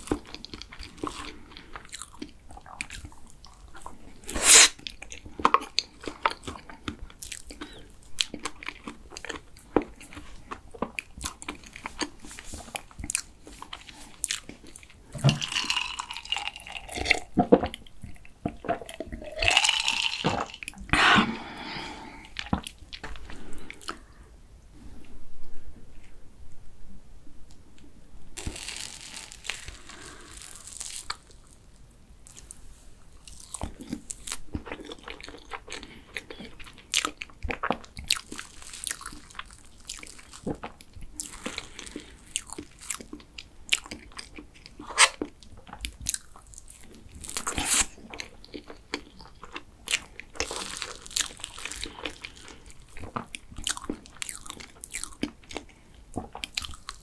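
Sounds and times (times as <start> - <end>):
chewing: 0.0 - 21.0, 33.2 - 57.0.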